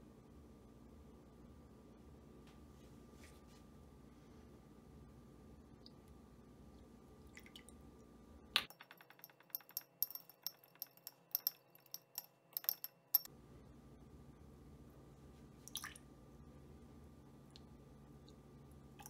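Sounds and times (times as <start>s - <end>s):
fork whisking in a glass bowl: 9.6s - 13.3s.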